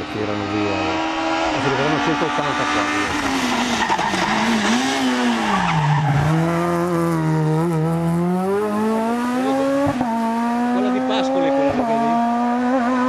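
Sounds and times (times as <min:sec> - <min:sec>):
rally car engine: 0:00.0 - 0:13.0.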